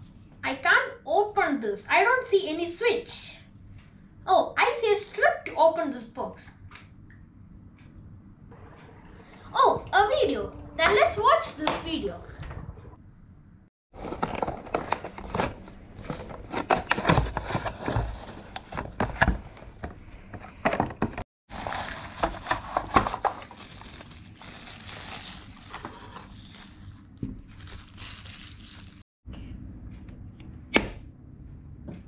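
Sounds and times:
plastic wrapping crinkling: 21.5s - 29.0s.

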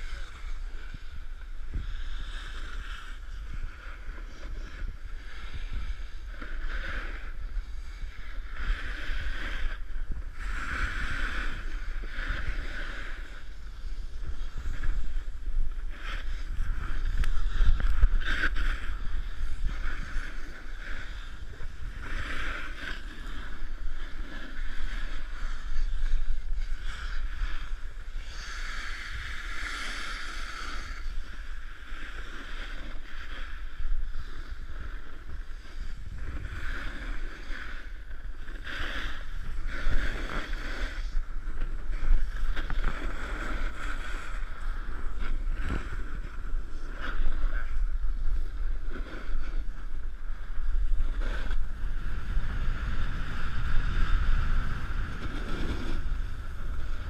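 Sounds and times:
snowboard scraping over snow: 0.0s - 57.0s
wind buffeting microphone: 39.2s - 57.0s.

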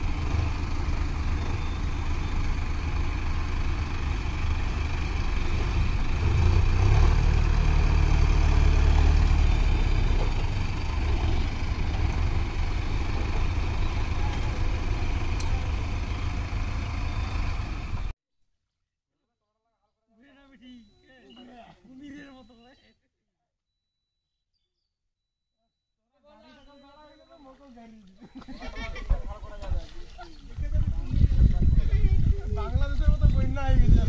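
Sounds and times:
tractor diesel engines running: 0.0s - 18.1s, 30.7s - 34.0s.

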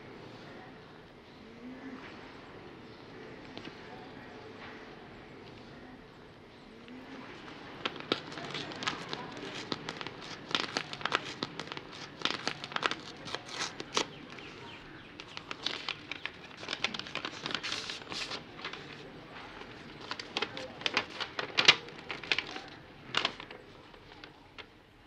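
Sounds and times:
paper rustling and crinkling: 6.9s - 24.8s.

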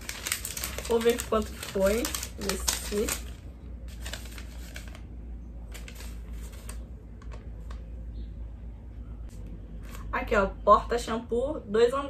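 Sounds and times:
paper receipt rustling: 0.0s - 7.9s.

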